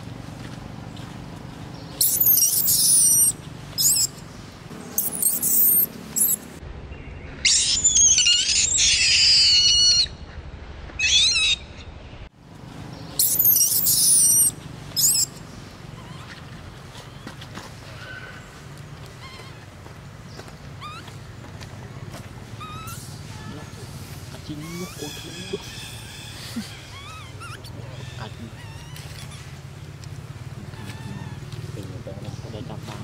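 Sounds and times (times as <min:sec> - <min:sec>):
infant monkey screaming: 0:02.0 - 0:04.2, 0:05.0 - 0:06.4, 0:07.4 - 0:10.2, 0:11.0 - 0:11.9, 0:13.2 - 0:16.5, 0:19.2 - 0:19.7, 0:20.8 - 0:21.1, 0:22.6 - 0:29.7, 0:30.6 - 0:31.8.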